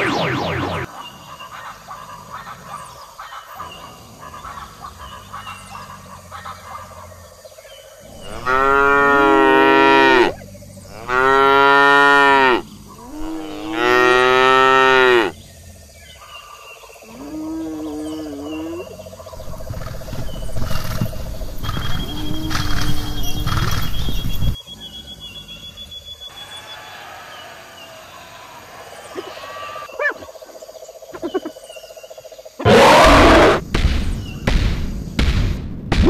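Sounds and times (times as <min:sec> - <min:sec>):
cow mooing: 0:08.1 - 0:15.3
faint wavering animal call: 0:26.1 - 0:30.5.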